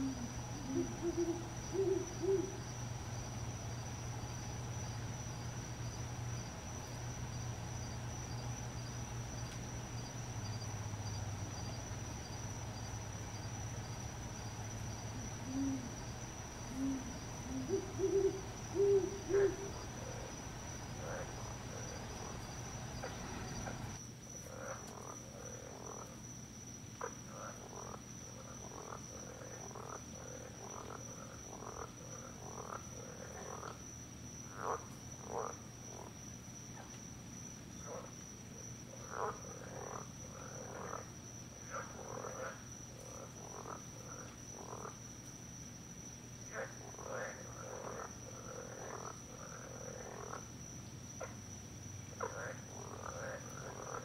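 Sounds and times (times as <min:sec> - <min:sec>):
low hoot-like notes: 0:00.0 - 0:02.6
frogs croaking: 0:00.0 - 0:54.0
high insect drone: 0:00.0 - 0:54.0.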